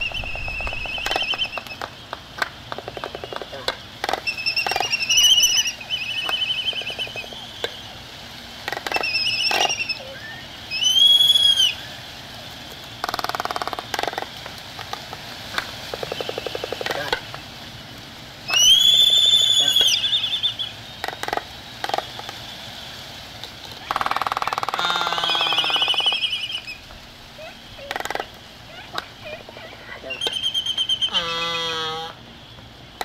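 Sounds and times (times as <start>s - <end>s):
albatrosses calling: 0.0s - 7.8s, 8.6s - 11.9s, 15.9s - 17.4s, 18.5s - 22.4s, 23.7s - 32.2s
rapid rattling calls: 0.0s - 33.0s
harsh bird call burst: 18.5s - 20.8s, 23.9s - 26.8s, 30.0s - 32.2s.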